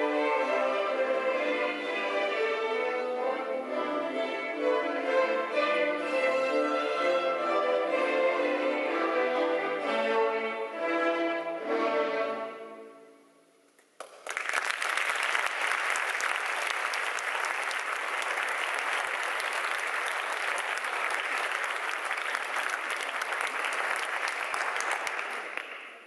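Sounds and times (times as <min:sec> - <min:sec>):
audience applause: 0:14.0 - 0:26.0.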